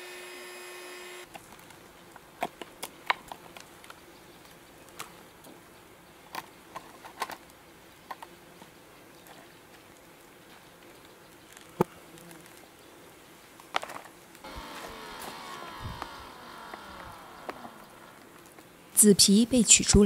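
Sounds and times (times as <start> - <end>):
steady hum: 14.4 - 19.7.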